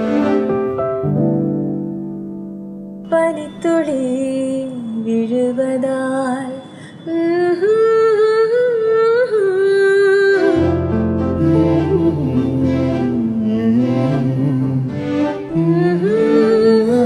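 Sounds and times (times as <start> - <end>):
soft accompaniment: 0.0 - 17.0
person singing slow melody: 11.3 - 17.0.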